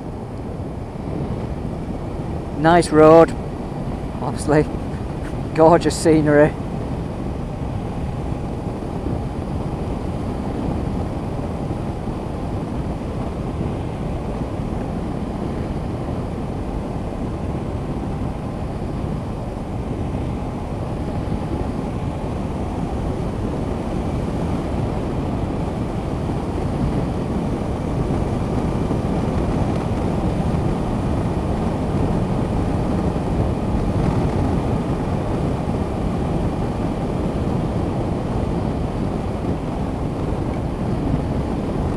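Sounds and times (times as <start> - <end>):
wind rushing over microphone: 0.0 - 41.9.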